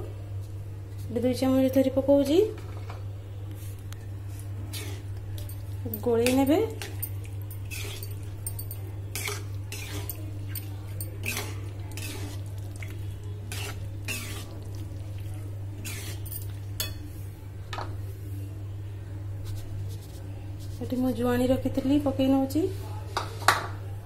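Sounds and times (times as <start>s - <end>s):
metal spoon scraping metal pan: 9.1s - 12.4s, 13.5s - 14.5s.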